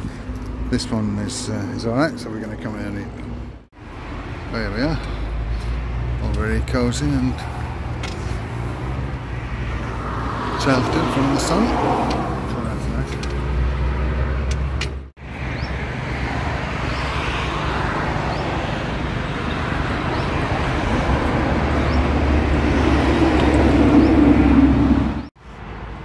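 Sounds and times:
road traffic: 0:00.0 - 0:26.0
vehicle approaching: 0:00.0 - 0:26.0.

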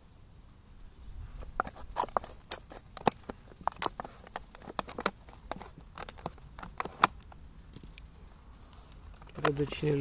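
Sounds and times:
plastic bottle clicking and crackling: 0:01.4 - 0:08.0, 0:09.0 - 0:09.8.

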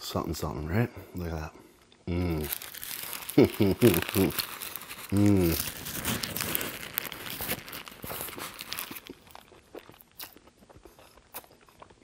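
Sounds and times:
food crunching: 0:02.1 - 0:12.0
paper wrapper crinkling: 0:02.3 - 0:10.4
wet chewing: 0:02.4 - 0:12.0.

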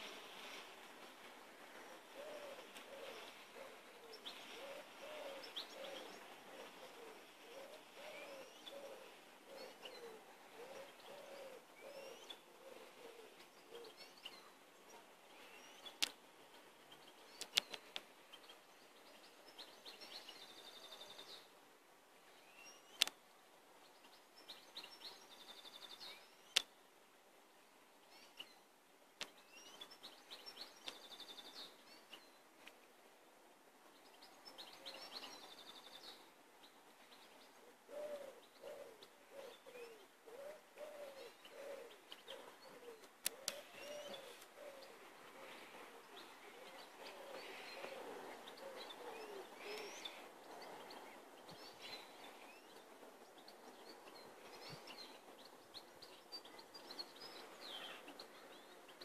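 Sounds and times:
faint steady hiss: 0:00.0 - 0:59.0
songbirds chirping and trilling: 0:00.0 - 0:59.0
pigeon cooing: 0:02.0 - 0:14.0, 0:37.7 - 0:50.3.

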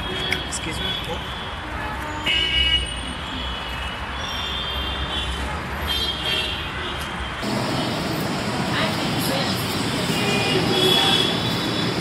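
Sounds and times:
vehicle horns tooting: 0:00.0 - 0:08.0, 0:10.1 - 0:12.0
road traffic rumble: 0:00.0 - 0:12.0.

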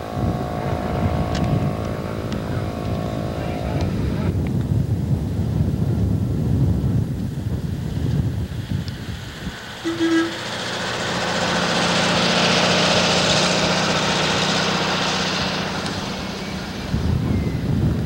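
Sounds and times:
vehicle passing on road: 0:00.0 - 0:04.4, 0:07.3 - 0:18.0
short horn toot: 0:09.8 - 0:10.6.

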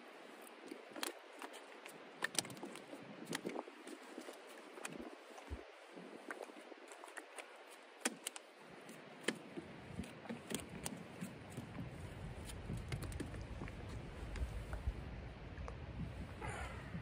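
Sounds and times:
wind buffeting microphone: 0:10.7 - 0:17.0.

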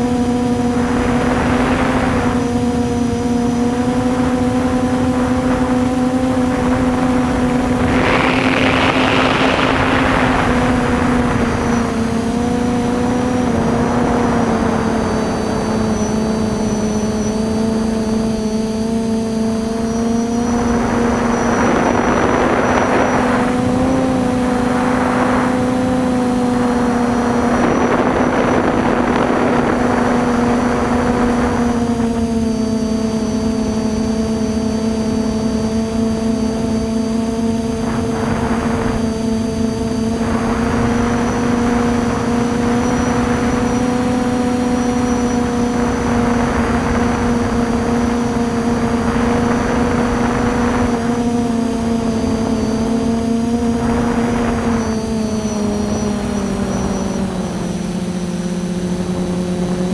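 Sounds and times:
drone motors whining: 0:00.0 - 0:59.9
rushing noise: 0:06.4 - 0:16.0.

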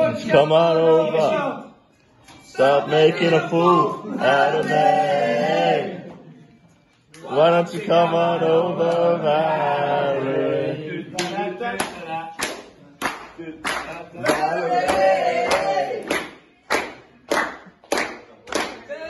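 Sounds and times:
people clapping a slow beat: 0:06.8 - 0:08.0, 0:11.1 - 0:19.0.

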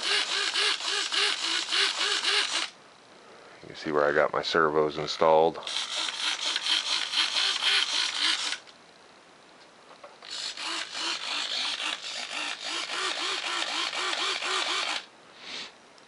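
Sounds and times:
small servos whirring: 0:00.0 - 0:02.8, 0:05.6 - 0:08.7, 0:10.2 - 0:15.1.

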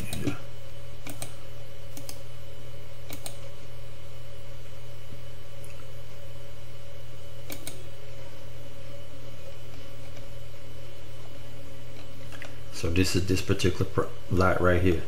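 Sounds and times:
low electrical hum: 0:00.0 - 0:15.0
keyboard and mouse clicks: 0:01.0 - 0:01.3, 0:07.5 - 0:07.8.

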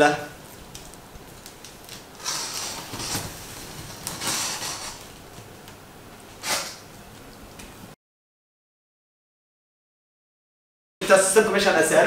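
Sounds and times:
box cutter slicing packing tape: 0:06.4 - 0:06.8.

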